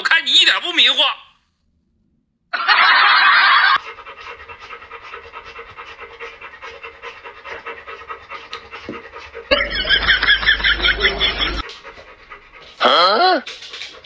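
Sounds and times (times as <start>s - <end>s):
dog panting rapidly: 3.8s - 14.0s.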